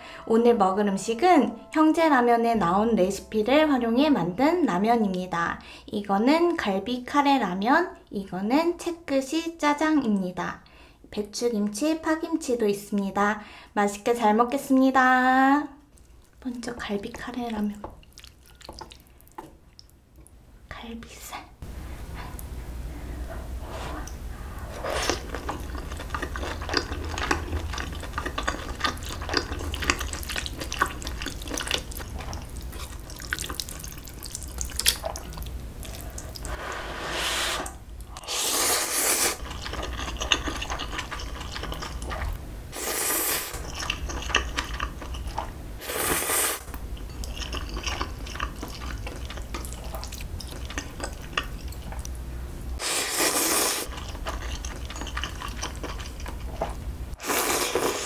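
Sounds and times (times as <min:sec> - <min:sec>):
wet chewing with mouth clicks: 0:15.9 - 0:20.4, 0:24.8 - 0:36.6, 0:39.0 - 0:42.4, 0:43.5 - 0:45.6, 0:46.5 - 0:52.2, 0:53.2 - 0:58.0
slurping noodles: 0:35.8 - 0:39.7, 0:42.8 - 0:43.7, 0:45.8 - 0:46.7, 0:52.8 - 0:53.9, 0:57.2 - 0:58.0.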